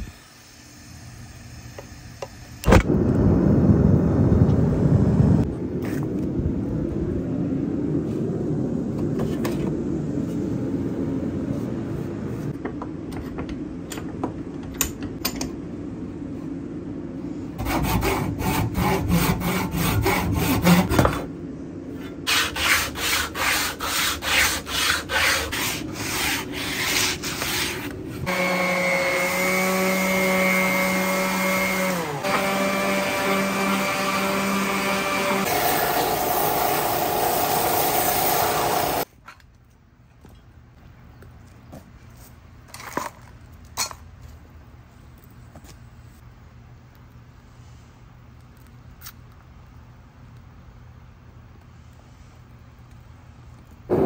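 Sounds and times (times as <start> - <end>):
rubbing strokes on wood: 22.3 - 28.3
electric sander running: 28.3 - 39.0.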